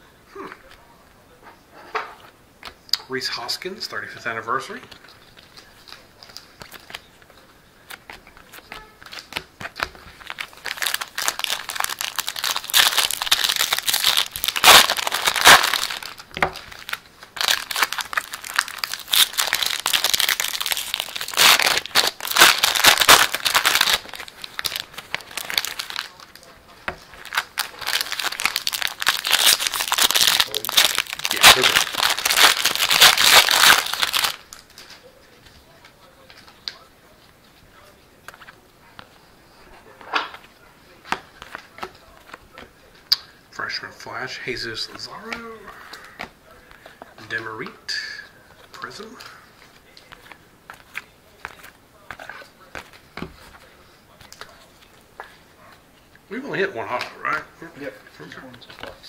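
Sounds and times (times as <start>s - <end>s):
foil wrappers crinkling and tearing: 7.9s - 35.0s.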